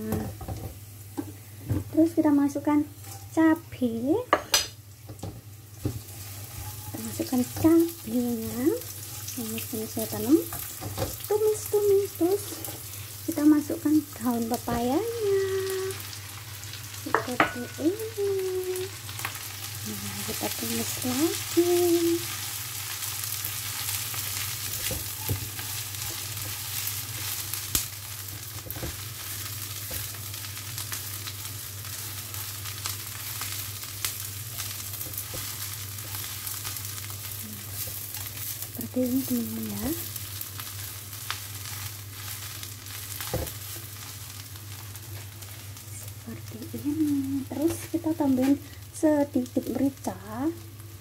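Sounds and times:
leaves sizzling in a frying pan: 0.0s - 51.0s
spatula scraping a pan: 5.8s - 7.9s, 12.4s - 12.9s, 23.6s - 27.6s.

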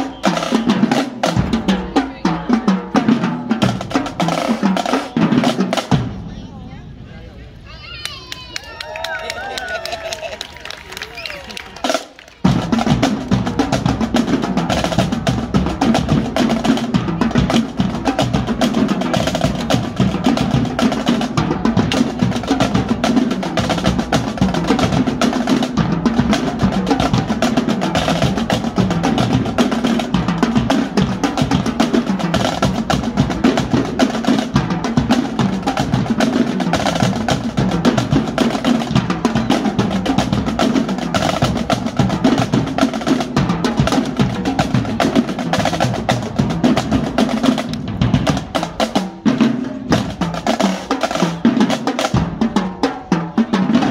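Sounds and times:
marching drumline playing: 0.0s - 7.1s, 9.6s - 53.9s.

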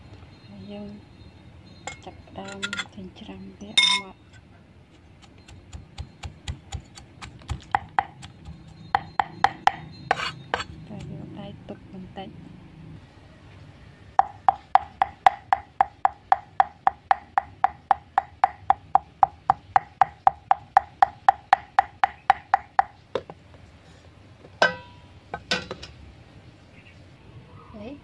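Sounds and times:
cleaver chopping on wooden board: 6.0s - 10.7s.

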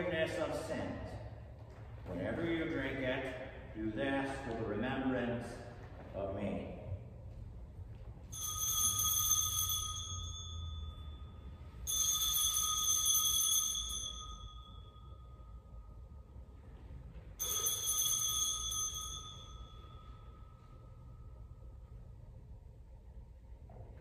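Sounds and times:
altar bells ringing: 8.2s - 22.0s.

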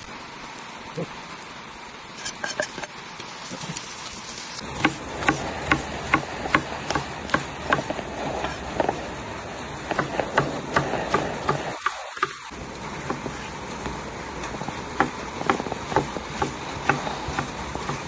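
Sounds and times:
knife chopping on wooden board: 4.8s - 9.0s, 9.9s - 12.4s, 15.0s - 18.0s.

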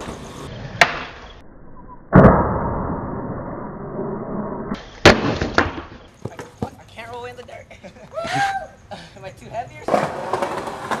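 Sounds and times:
skateboard clacking: 9.8s - 11.0s
skateboard scraping metal rail: 9.9s - 11.0s.

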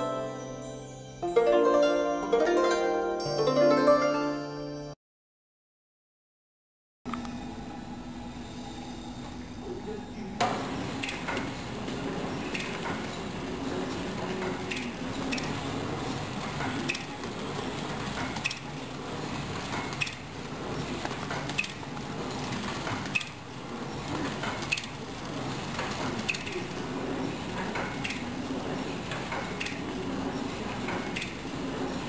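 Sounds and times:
packing machine hum: 7.1s - 32.0s.

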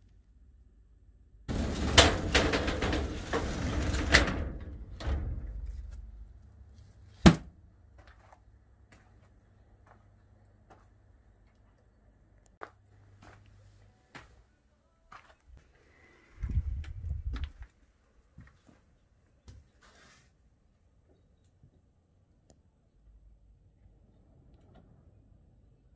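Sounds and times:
door banging shut: 1.5s - 6.3s
sliding shed doors rumbling: 1.5s - 7.1s.

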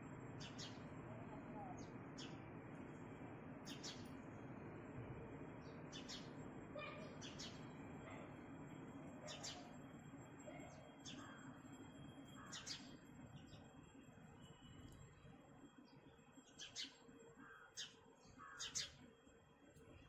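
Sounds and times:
sparrow chirping: 0.4s - 0.9s, 1.6s - 2.4s, 3.6s - 4.2s, 5.6s - 6.4s, 7.1s - 7.7s, 9.2s - 9.8s, 12.4s - 13.6s, 16.5s - 19.0s.

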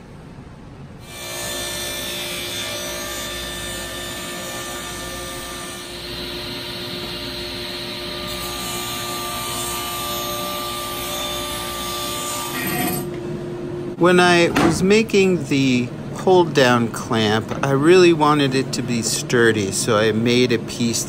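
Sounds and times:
saw blade cutting plywood: 1.0s - 13.1s
table saw motor running: 1.1s - 13.1s.

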